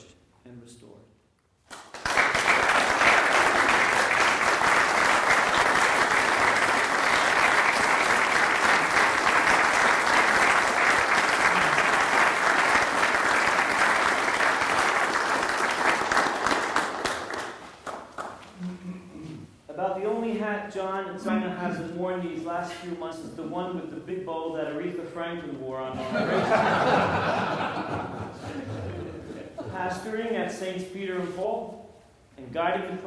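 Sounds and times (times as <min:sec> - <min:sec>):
audience applause: 0:01.8 - 0:18.4.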